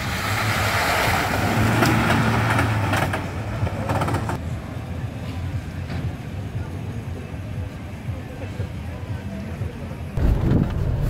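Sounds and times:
tyres and mud splashing: 0:00.0 - 0:04.4.

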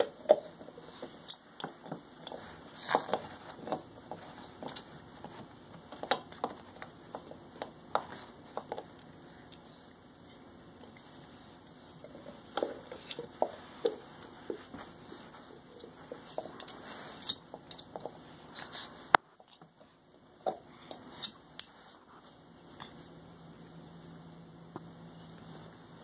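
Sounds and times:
dog gnawing a bone: 0:00.0 - 0:10.0.

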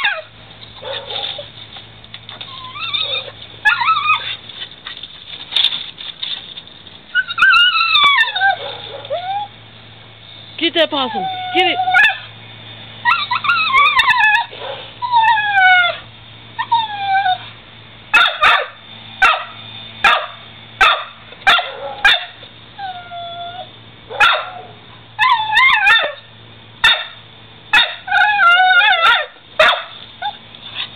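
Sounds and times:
dog whining: 0:00.0 - 0:01.5, 0:02.3 - 0:04.4, 0:07.1 - 0:09.6, 0:10.9 - 0:12.3, 0:13.0 - 0:17.5, 0:22.8 - 0:23.7, 0:24.5 - 0:26.2, 0:28.0 - 0:29.3
dog barking: 0:00.8 - 0:01.4, 0:08.5 - 0:09.2, 0:14.6 - 0:14.9, 0:18.2 - 0:22.4, 0:24.1 - 0:24.8, 0:26.8 - 0:27.2, 0:29.0 - 0:30.0.

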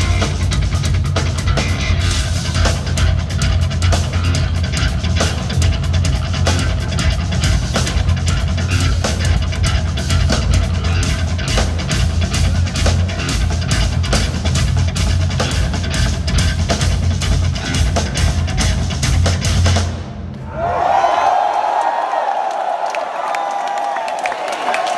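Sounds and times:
electric guitar riffing: 0:00.0 - 0:19.8
heavy low end bass: 0:00.0 - 0:20.4
fast drums: 0:00.0 - 0:21.0.

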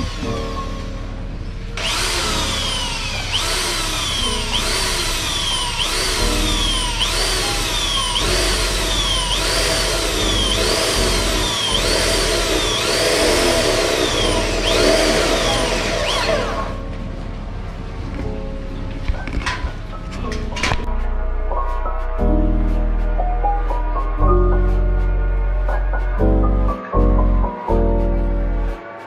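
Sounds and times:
power drill motor whining: 0:00.0 - 0:00.3, 0:01.8 - 0:16.8.

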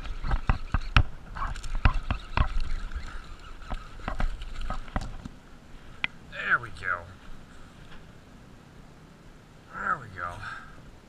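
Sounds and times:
fishing reel clicking: 0:00.0 - 0:04.9.

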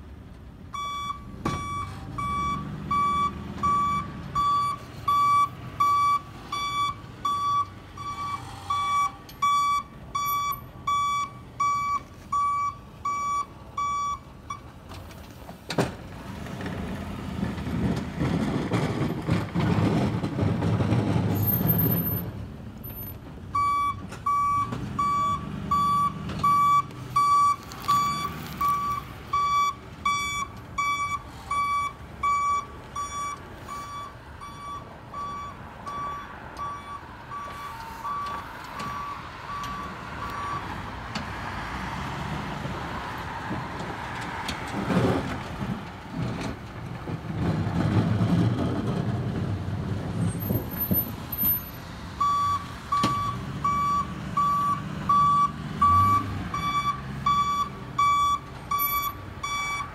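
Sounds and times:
truck engine and plow rumble: 0:00.0 - 0:59.9
truck backup alarm beeping: 0:00.6 - 0:14.7, 0:22.9 - 0:40.8, 0:50.4 - 0:59.9.

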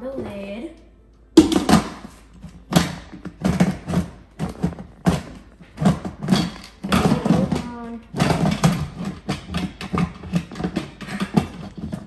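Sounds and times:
pot lid knocking and scraping: 0:01.4 - 0:12.0.

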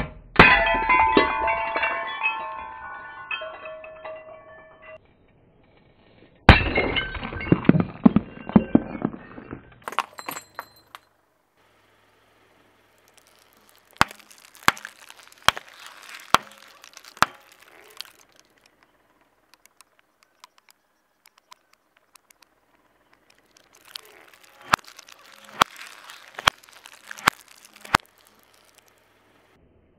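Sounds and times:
ceramic shards crackling under tyre: 0:00.4 - 0:05.0, 0:06.5 - 0:11.2, 0:13.0 - 0:29.2
plastic tubes bursting with cracks: 0:13.0 - 0:18.8, 0:23.2 - 0:29.0.

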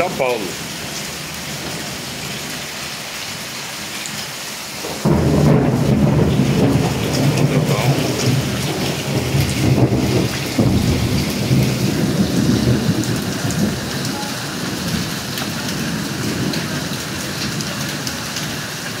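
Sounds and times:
heavy rain and hail: 0:00.0 - 0:19.0
deep rumble: 0:05.2 - 0:14.0.

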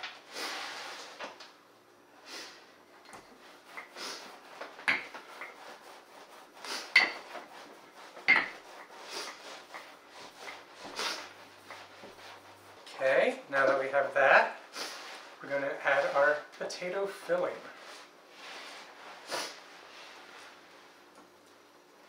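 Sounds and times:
rolling pin rubbing on dough: 0:03.2 - 0:16.5.

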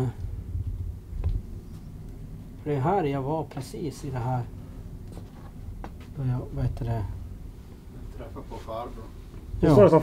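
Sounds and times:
low room rumble: 0:00.0 - 0:10.0.

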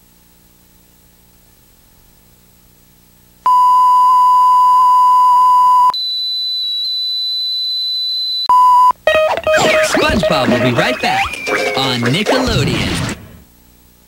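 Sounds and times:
electronic beep tone: 0:03.5 - 0:12.0.

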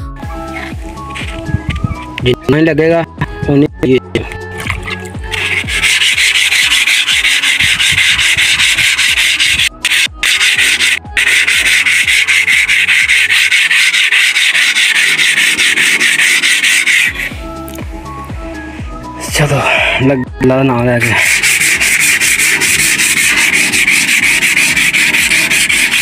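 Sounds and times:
sandpaper rubbing on sheet steel: 0:05.3 - 0:17.4, 0:21.0 - 0:26.0.

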